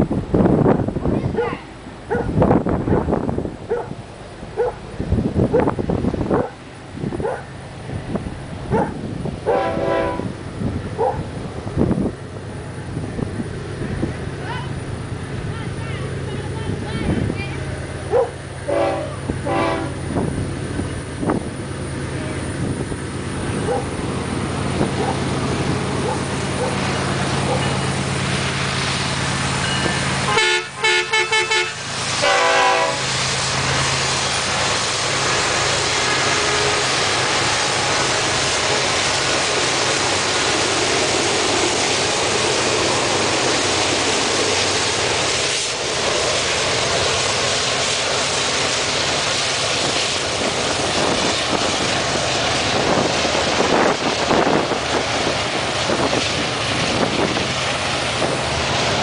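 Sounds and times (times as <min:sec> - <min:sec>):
diesel locomotives passing: 0:00.0 - 0:59.0
wheels rumbling on rail: 0:00.0 - 0:59.0
train air horn blasts: 0:09.5 - 0:10.3, 0:18.7 - 0:20.0, 0:30.3 - 0:33.1.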